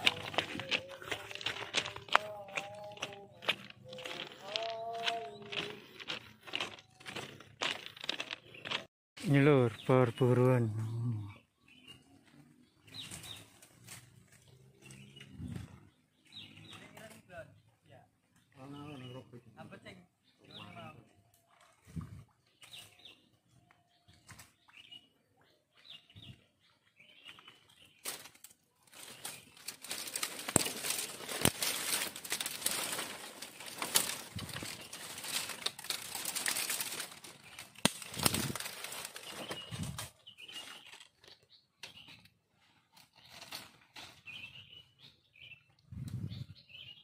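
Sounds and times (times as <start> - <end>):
twigs snapping: 0.0 - 8.8, 28.0 - 40.1
twigs and leaves crackling: 0.0 - 8.9, 12.2 - 15.1, 27.2 - 42.2, 42.9 - 44.4.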